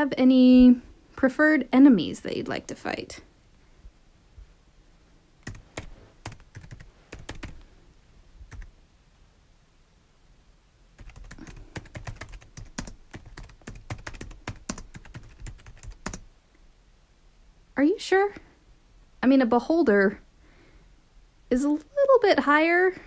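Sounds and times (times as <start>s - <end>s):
typing on computer keyboard: 5.4s - 7.6s, 8.5s - 8.7s, 11.0s - 16.3s.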